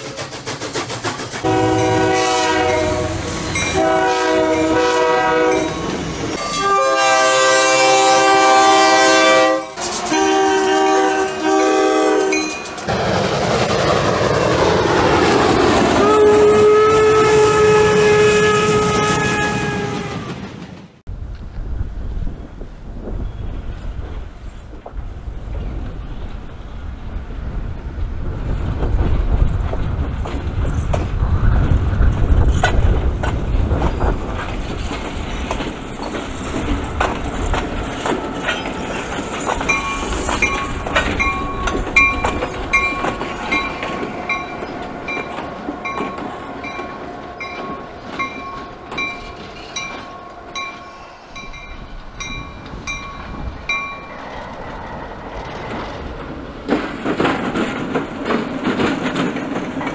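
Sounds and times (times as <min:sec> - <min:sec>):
wheels clicking over rail joints: 0:00.0 - 0:02.1, 0:09.7 - 0:10.3, 0:12.1 - 0:15.9, 0:28.3 - 0:50.8, 0:51.5 - 0:59.9
diesel locomotive engine rumbling: 0:00.0 - 0:59.9
locomotive bell ringing: 0:03.5 - 0:03.9, 0:05.5 - 0:05.8, 0:06.4 - 0:07.0, 0:11.6 - 0:12.9, 0:35.8 - 0:54.3.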